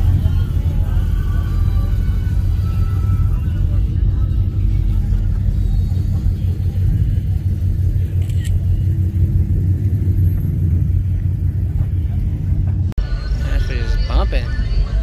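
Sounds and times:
car engine idling: 0:00.0 - 0:15.0.

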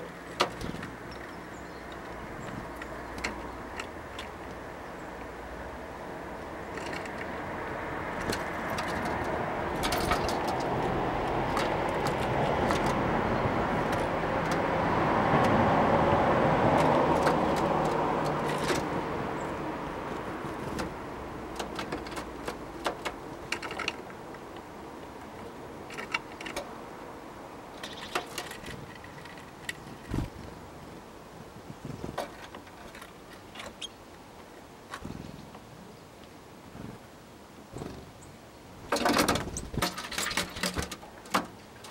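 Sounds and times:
birds pecking at wooden feeder: 0:00.0 - 0:27.0, 0:27.6 - 0:30.6, 0:38.9 - 0:41.9
car passing: 0:05.6 - 0:21.6.

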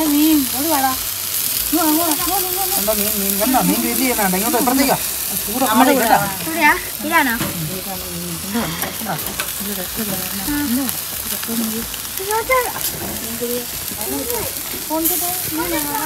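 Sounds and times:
people talking: 0:00.0 - 0:01.0, 0:01.7 - 0:16.0
food sizzling on a grill: 0:00.0 - 0:16.0.

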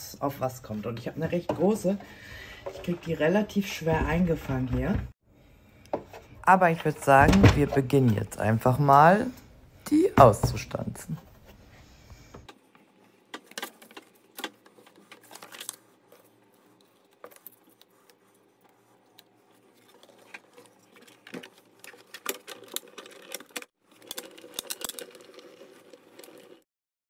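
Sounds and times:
paper rustling: 0:13.3 - 0:26.6.

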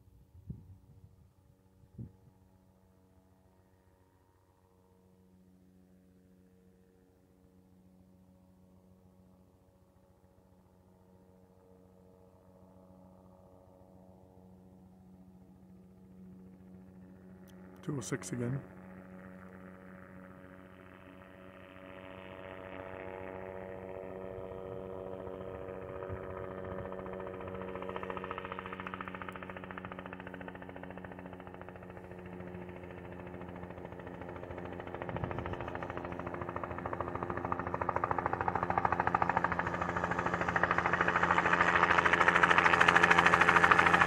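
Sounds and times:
helicopter rotor and engine: 0:00.0 - 0:44.0.

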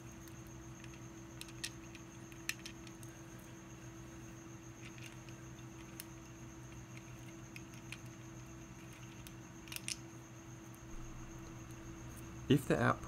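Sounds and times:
faint high whine: 0:00.0 - 0:13.0
low hum: 0:10.7 - 0:13.0.

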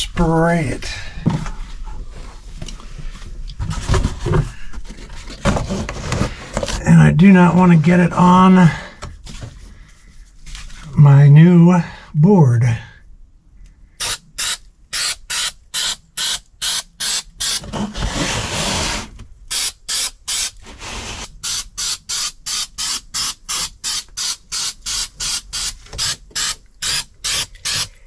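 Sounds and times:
aerosol spray can hissing: 0:14.0 - 0:17.6, 0:19.5 - 0:20.6, 0:21.2 - 0:27.9.

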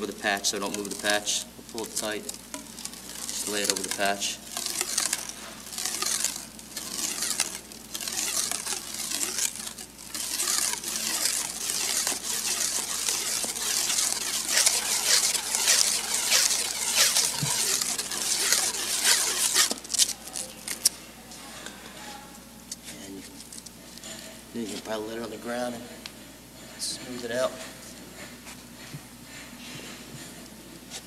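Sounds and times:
plastic wrap crinkling: 0:00.0 - 0:21.0.

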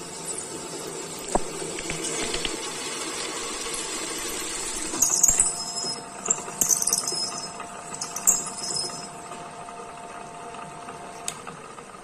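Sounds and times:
milling machine spindle humming: 0:00.0 - 0:12.0
high-pitched metal screeching: 0:04.6 - 0:09.3.

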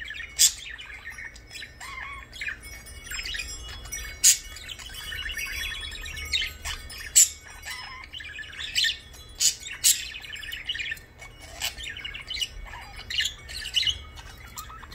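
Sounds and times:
budgerigar chattering and warbling: 0:10.7 - 0:14.9.

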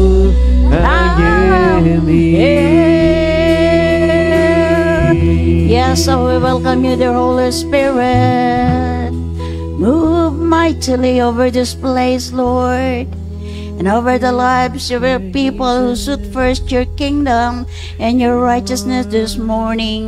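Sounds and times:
person singing long held notes: 0:00.0 - 0:09.2
sustained instrumental backing: 0:00.0 - 0:10.6.

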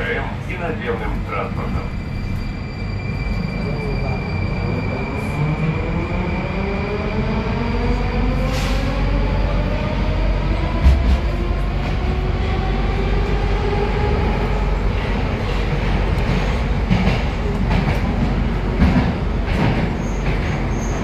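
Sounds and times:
train wheels rumbling in tunnel: 0:00.0 - 0:21.0.

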